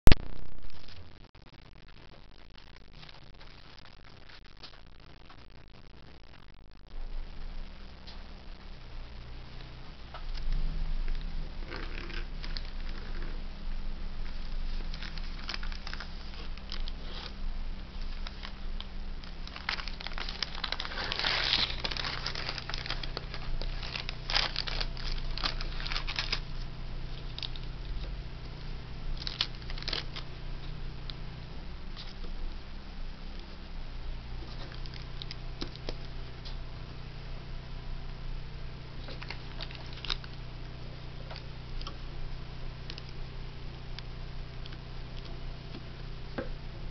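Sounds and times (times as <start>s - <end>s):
low steady hum: 0.0s - 46.9s
tracing paper rustling and crinkling: 14.2s - 30.8s, 39.0s - 40.4s.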